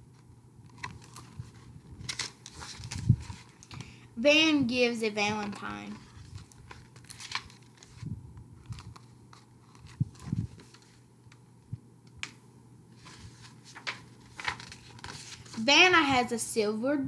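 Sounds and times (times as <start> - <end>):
book pages turning: 0.1 - 4.0, 5.1 - 11.4, 12.2 - 15.6.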